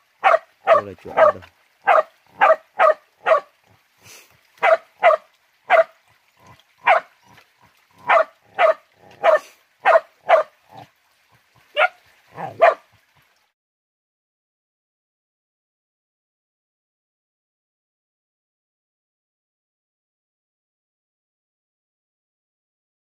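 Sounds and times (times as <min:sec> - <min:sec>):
dog barking: 0:00.2 - 0:03.5, 0:04.6 - 0:06.0, 0:06.8 - 0:07.1, 0:08.0 - 0:10.8, 0:11.7 - 0:12.9.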